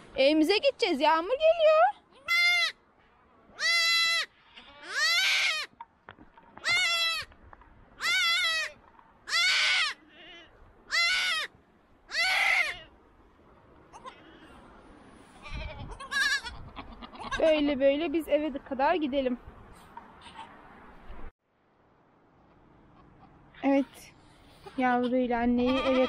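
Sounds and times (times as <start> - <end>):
goat kid bleating: 2.0 - 2.8, 3.5 - 5.7, 6.6 - 7.3, 8.0 - 11.5, 12.1 - 12.9, 13.9 - 14.5, 15.3 - 17.6, 20.2 - 20.5, 25.5 - 26.0.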